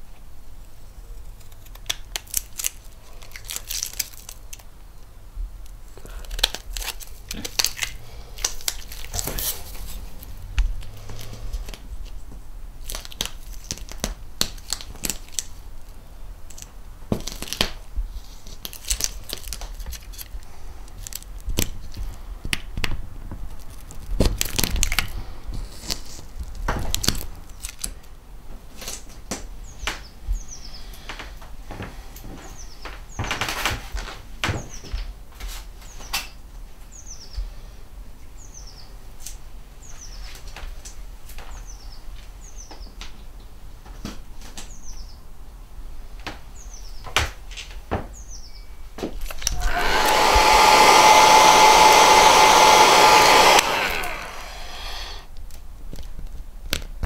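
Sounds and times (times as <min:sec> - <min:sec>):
paper strips crinkling: 0:01.2 - 0:04.7, 0:06.2 - 0:12.2, 0:16.5 - 0:20.4.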